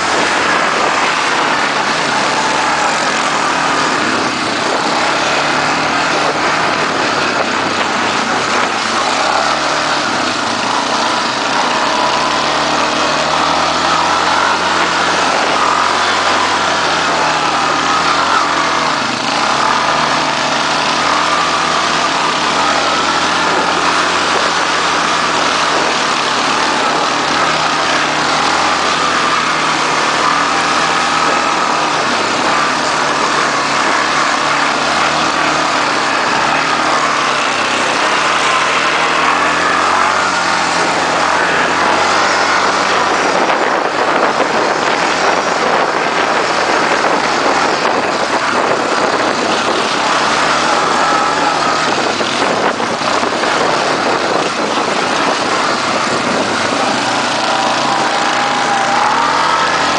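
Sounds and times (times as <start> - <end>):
quad bike engine revving: 0.0 - 59.9
steady rush of noise: 0.0 - 59.9.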